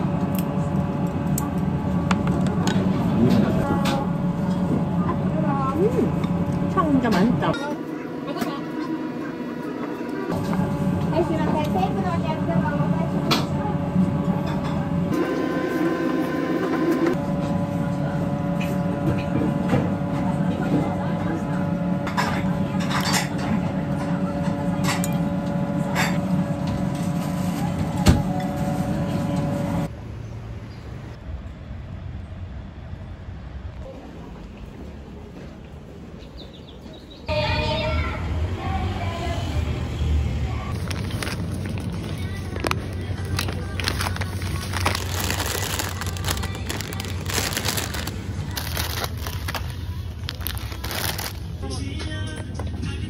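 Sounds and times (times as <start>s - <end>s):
machine hum: 0.0s - 22.8s, 40.3s - 51.8s
street ambience: 0.0s - 53.0s
plastic packaging crinkling: 40.7s - 51.6s.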